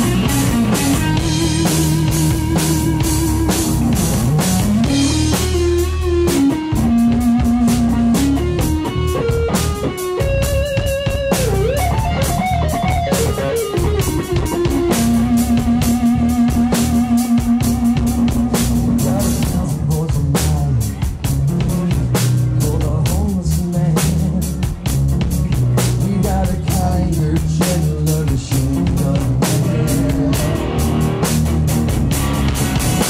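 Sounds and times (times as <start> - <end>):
electric guitar lead with bending notes: 0.0 - 19.9, 28.4 - 33.0
bass guitar: 0.0 - 33.0
drum kit: 0.0 - 33.0.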